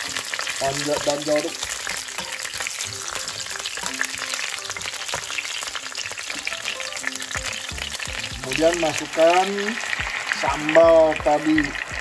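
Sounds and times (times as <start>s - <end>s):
herbs sizzling in hot oil: 0.0s - 12.0s.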